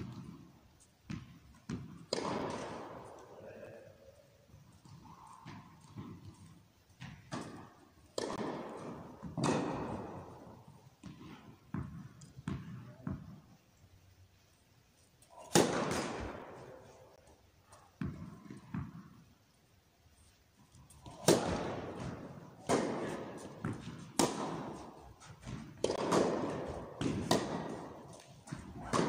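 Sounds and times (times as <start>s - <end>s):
tennis racquet hitting ball: 1.1s - 3.8s, 4.7s - 13.4s, 15.4s - 17.2s, 17.8s - 19.2s, 21.0s - 29.0s.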